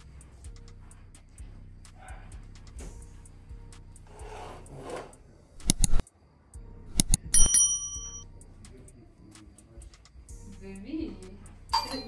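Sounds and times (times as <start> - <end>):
metallic clink: 7.0 - 8.2, 11.8 - 12.0.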